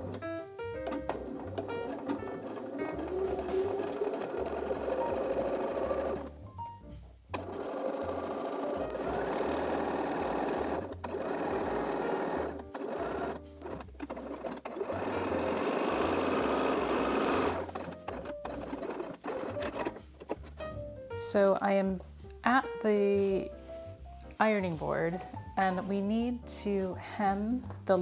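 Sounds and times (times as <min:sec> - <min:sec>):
sewing machine stitching: 0:00.0 - 0:06.3, 0:07.3 - 0:20.6.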